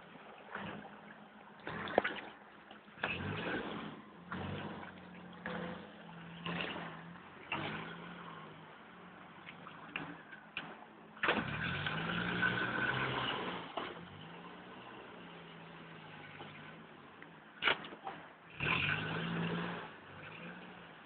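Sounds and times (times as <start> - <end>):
engine revving: 3.0 - 16.9, 18.5 - 21.0.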